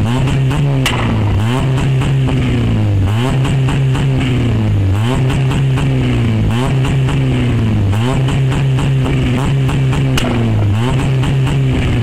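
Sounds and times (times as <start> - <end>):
car engine revving at limiter: 0.0 - 12.0
exhaust crackles and pops: 0.0 - 12.0.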